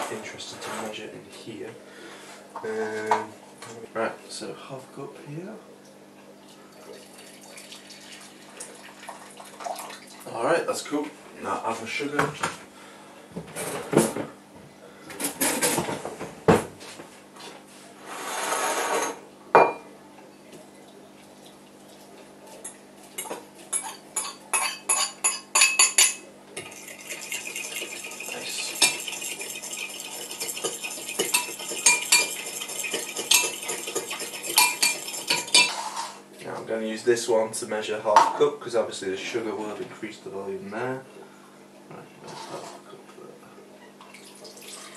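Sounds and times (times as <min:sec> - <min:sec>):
spoon clinking against bowl: 0:23.2 - 0:35.8.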